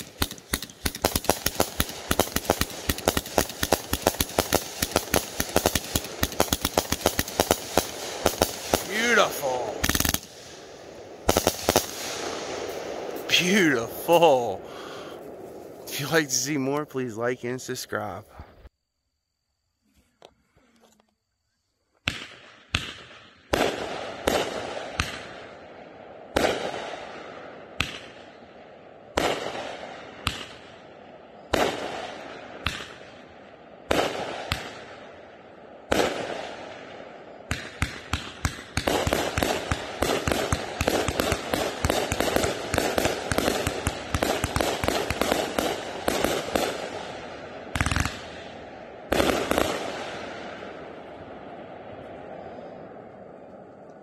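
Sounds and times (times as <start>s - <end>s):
rapid firework pops and crackle: 0.0s - 13.6s, 22.0s - 25.5s, 26.4s - 27.1s, 27.8s - 28.3s, 29.2s - 30.7s, 31.5s - 33.2s, 33.9s - 35.0s, 35.9s - 36.8s, 37.5s - 48.5s, 49.1s - 50.3s
firework bangs: 0.0s - 16.8s, 22.0s - 25.6s, 26.3s - 28.4s, 29.1s - 30.8s, 31.5s - 35.1s, 35.8s - 51.0s.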